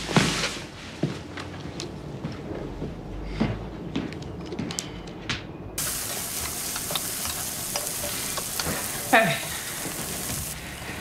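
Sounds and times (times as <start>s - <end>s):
stirring clicks: 5.8s - 10.6s
eggs sizzling in a pan: 5.8s - 11.0s.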